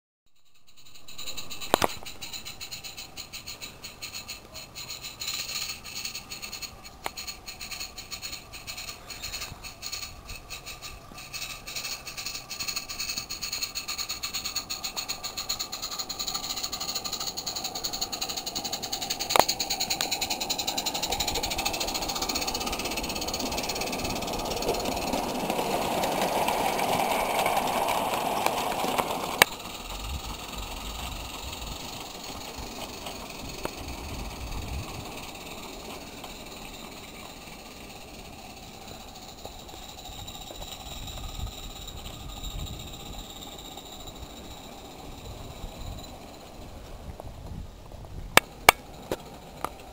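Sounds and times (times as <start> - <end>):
steam locomotive chuffing: 0.4 - 49.9
sharp click: 1.4 - 2.2, 19.2 - 20.1.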